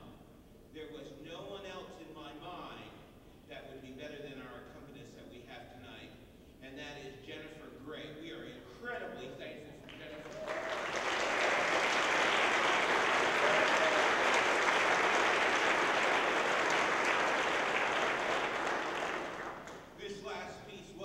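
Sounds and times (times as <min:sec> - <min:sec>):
audience applauding: 0:09.9 - 0:20.0.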